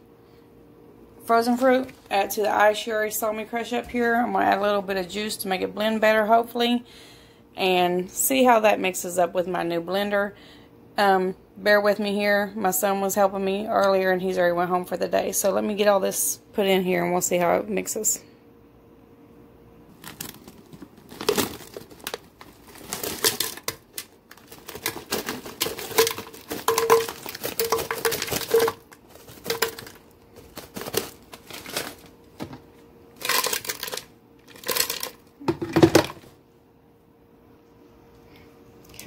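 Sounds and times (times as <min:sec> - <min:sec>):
plastic bag crinkling: 0:19.9 - 0:36.2
frozen fruit clattering into blender: 0:19.9 - 0:36.3.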